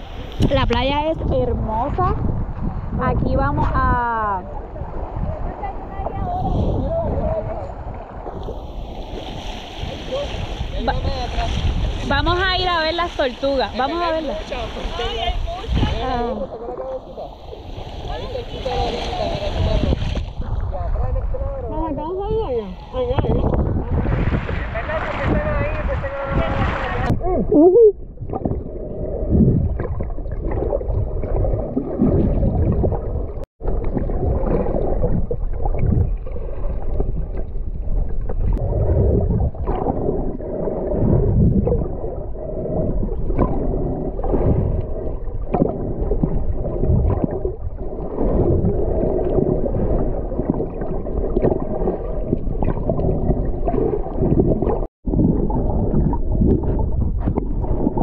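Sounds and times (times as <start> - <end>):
underwater rumble of moving water: 0.0 - 58.0
underwater gurgling and crackling: 27.8 - 58.0.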